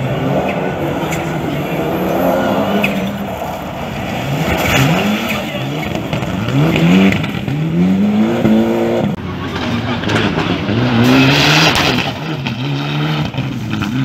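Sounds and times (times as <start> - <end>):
rally car engine revving: 0.0 - 14.0.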